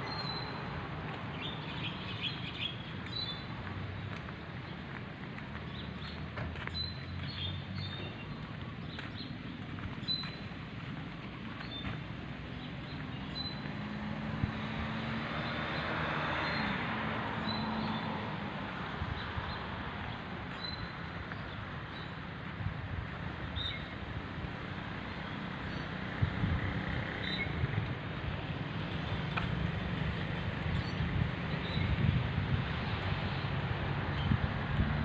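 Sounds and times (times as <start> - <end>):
road traffic: 0.0 - 35.0
vehicle passing: 11.9 - 21.8, 22.4 - 35.0.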